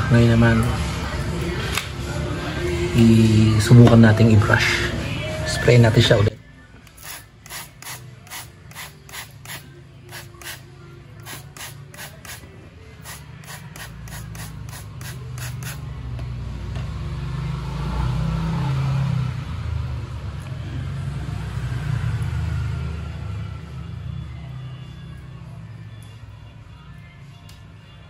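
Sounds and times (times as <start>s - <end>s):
spray bottle squirting: 6.9s - 15.8s.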